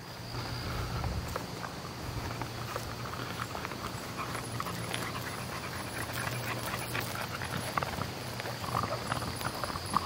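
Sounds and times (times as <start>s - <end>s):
footsteps on leafy trail: 0.2s - 10.0s
dog panting: 2.6s - 10.0s.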